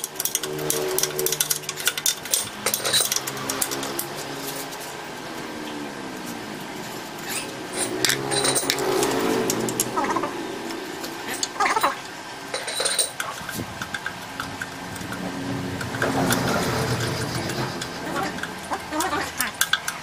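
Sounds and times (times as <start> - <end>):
wrench clinking on metal bolt: 0.0 - 4.0
sharp metal clicks: 0.0 - 4.3, 10.6 - 20.0.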